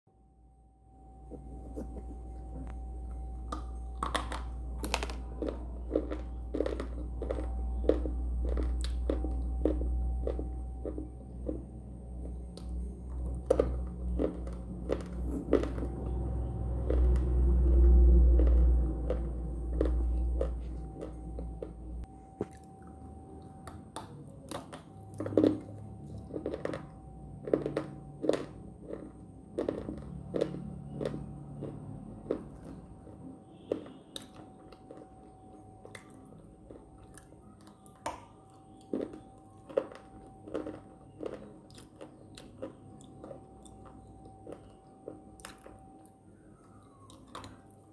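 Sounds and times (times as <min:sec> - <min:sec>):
low rumble: 0:00.5 - 0:33.3
crunchy snack biting and chewing: 0:03.5 - 0:11.6, 0:12.2 - 0:21.8, 0:24.0 - 0:46.1.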